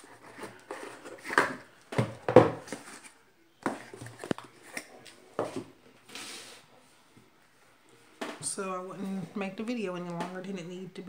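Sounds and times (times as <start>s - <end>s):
cardboard rustling and scraping: 0.0s - 6.6s.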